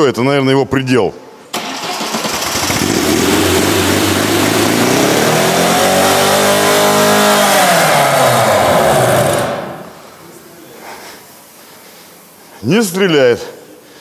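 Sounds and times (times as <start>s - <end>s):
car engine revving: 2.2s - 10.1s.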